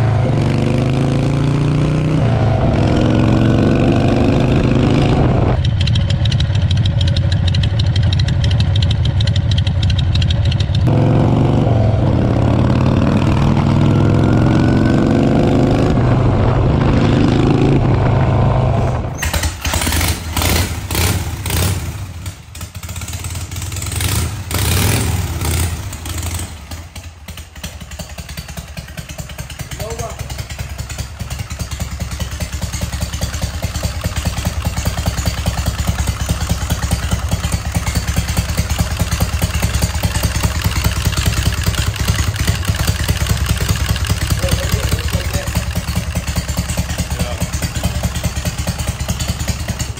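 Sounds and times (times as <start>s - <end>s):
motorcycle engine accelerating: 0.0s - 49.9s
second motorcycle engine revving: 0.0s - 49.9s.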